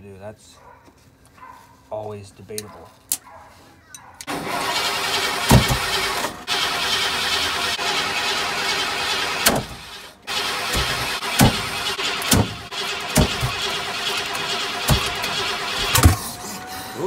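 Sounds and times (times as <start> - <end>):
engine cranking by starter: 4.2 - 16.7
sharp thumps: 5.4 - 6.0, 10.8 - 13.8, 14.8 - 16.2.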